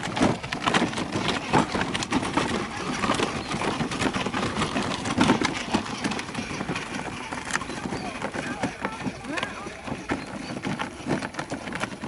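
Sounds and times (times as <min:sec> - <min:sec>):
plastic wheels rolling on dirt: 0:00.0 - 0:12.0.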